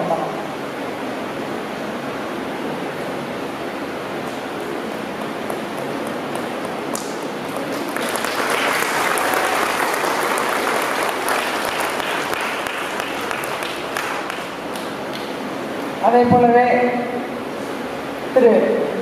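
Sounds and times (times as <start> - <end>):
audience applauding: 5.4 - 15.4.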